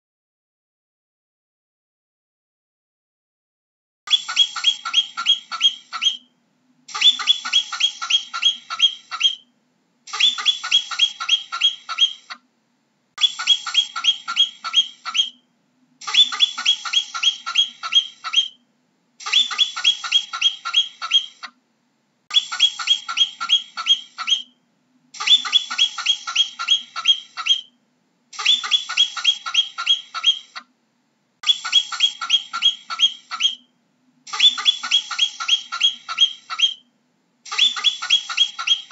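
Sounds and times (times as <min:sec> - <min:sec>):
marmot alarm chirps: 0:04.1 - 0:06.3, 0:06.9 - 0:09.5, 0:10.1 - 0:12.4, 0:13.2 - 0:15.4, 0:16.0 - 0:18.6, 0:19.2 - 0:21.5, 0:22.3 - 0:24.6, 0:25.2 - 0:27.8, 0:28.4 - 0:30.6, 0:31.4 - 0:33.7, 0:34.3 - 0:36.9, 0:37.5 - 0:38.9.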